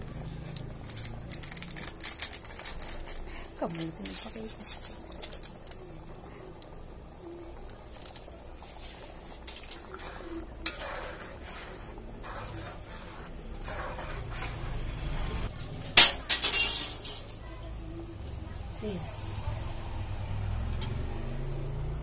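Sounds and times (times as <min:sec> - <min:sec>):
metal spatula scraping a wok: 0:08.0 - 0:17.4.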